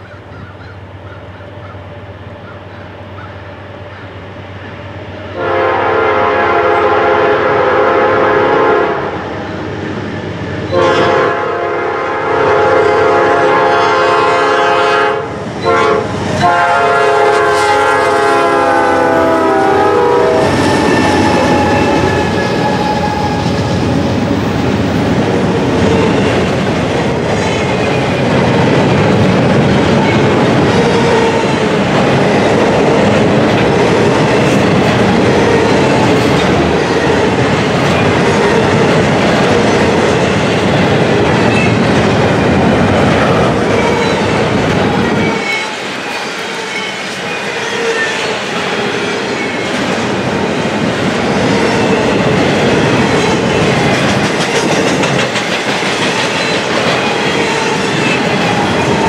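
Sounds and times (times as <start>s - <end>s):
train cars rolling by: 0.0s - 59.0s
locomotive air horn blasts: 5.4s - 9.2s, 10.7s - 23.6s.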